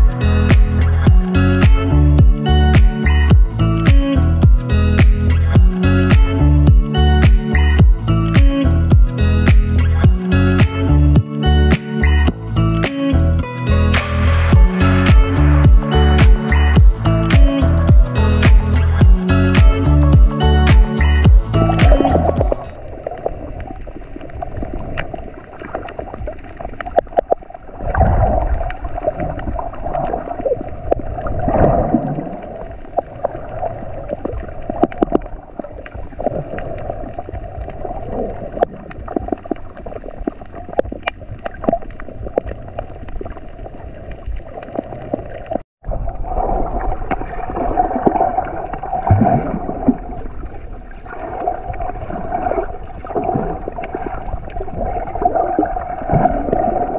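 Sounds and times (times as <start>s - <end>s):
muffled underwater rush and gurgling: 21.5s - 56.9s
sharp clicks underwater: 21.7s - 23.3s, 34.1s - 43.5s.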